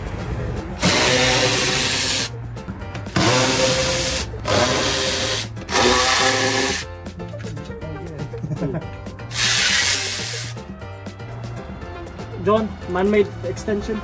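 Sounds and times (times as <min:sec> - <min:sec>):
impact wrench hammering: 0:00.8 - 0:02.3, 0:03.1 - 0:06.8.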